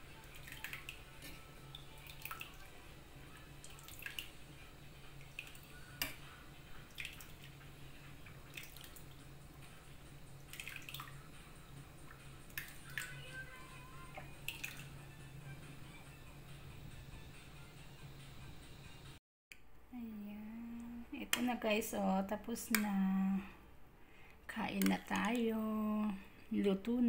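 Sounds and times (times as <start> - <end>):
liquid dripping off ladle: 10.5 - 11.2.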